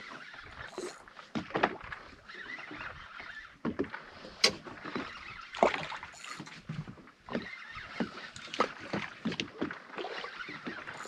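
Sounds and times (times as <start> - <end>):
water lapping against boat hull: 0.0 - 11.0.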